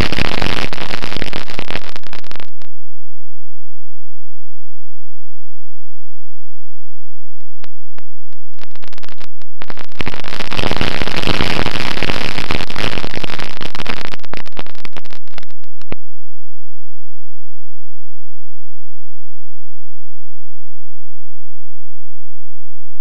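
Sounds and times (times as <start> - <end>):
dense hiss and crackle: 0.0 - 2.8, 7.4 - 16.0
crackling clicks: 0.0 - 3.3, 7.4 - 16.0.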